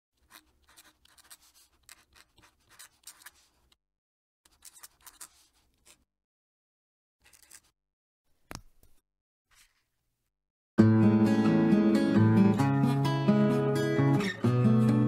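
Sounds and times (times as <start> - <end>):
pen nib scratching paper: 0.2 - 3.8, 4.5 - 6.0.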